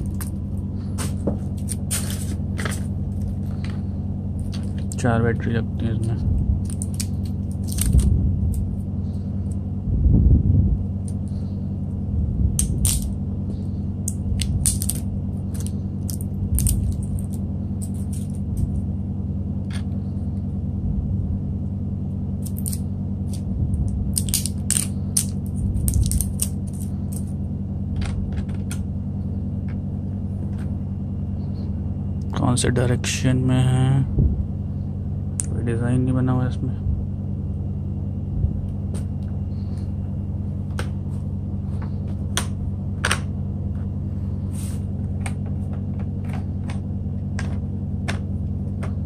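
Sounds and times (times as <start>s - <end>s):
steady low hum: 0.0s - 49.0s
batteries clicking against plastic: 22.4s - 23.4s, 24.1s - 27.3s.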